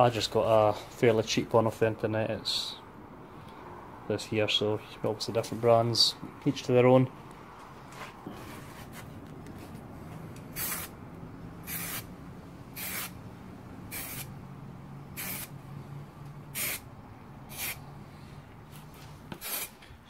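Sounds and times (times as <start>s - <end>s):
aerosol can spraying: 10.5s - 11.0s, 11.6s - 12.1s, 12.8s - 13.2s, 13.9s - 14.3s, 15.2s - 15.5s, 16.6s - 16.8s, 17.5s - 17.8s, 19.3s - 19.8s.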